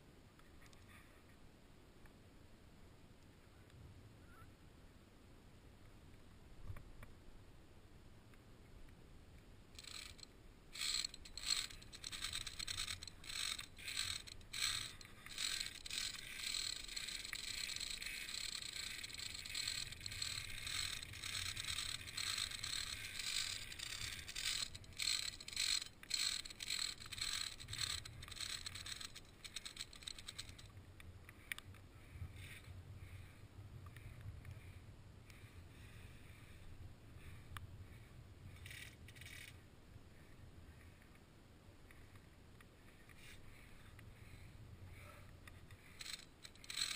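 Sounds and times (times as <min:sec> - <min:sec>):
carabiners scraping on steel cable: 0:09.8 - 0:30.7, 0:38.5 - 0:39.6, 0:45.8 - 0:46.9.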